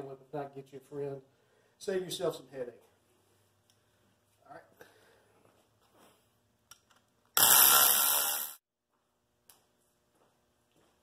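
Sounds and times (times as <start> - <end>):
power tool running: 7.4 - 8.6.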